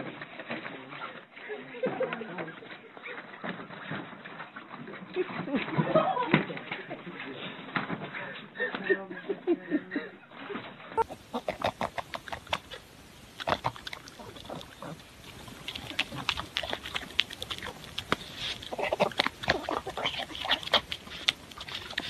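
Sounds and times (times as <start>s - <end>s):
dog smacking and chomping: 11.0s - 22.0s.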